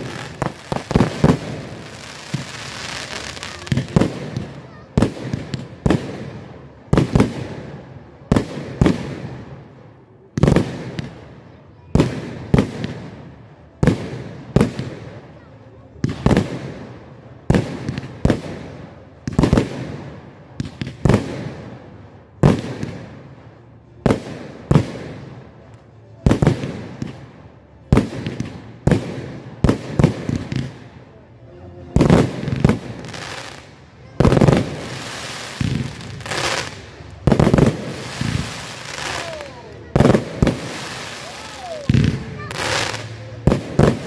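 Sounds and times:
fireworks crackle hiss: 0:00.0 - 0:06.4, 0:32.0 - 0:44.0
fireworks bangs echoing: 0:00.0 - 0:09.6, 0:16.0 - 0:23.3, 0:27.9 - 0:31.0, 0:32.0 - 0:44.0.

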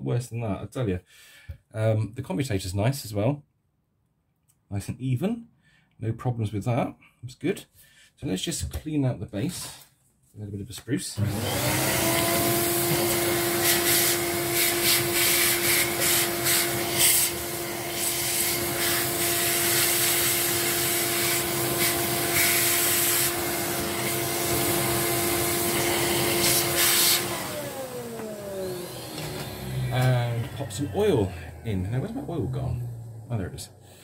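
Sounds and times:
vacuum cleaner humming: 0:11.2 - 0:34.0
vacuum motor winding down: 0:11.2 - 0:34.0.

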